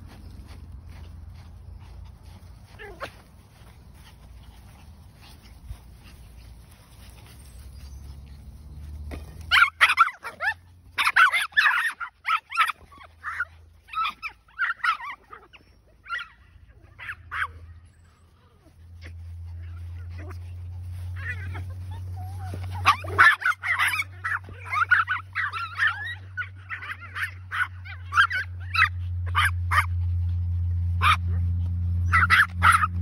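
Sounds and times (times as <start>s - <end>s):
puppies yapping: 0.0s - 33.0s.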